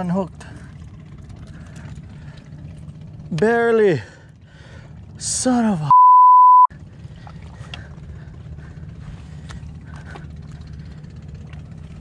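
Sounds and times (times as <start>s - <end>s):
censor bleep: 5.9s - 6.7s.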